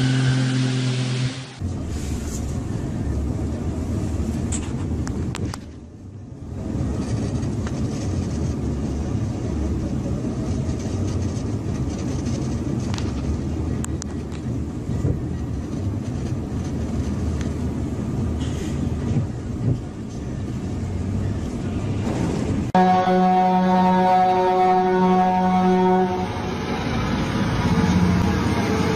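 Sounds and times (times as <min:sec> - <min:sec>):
truck diesel engine droning: 0:00.0 - 0:04.4.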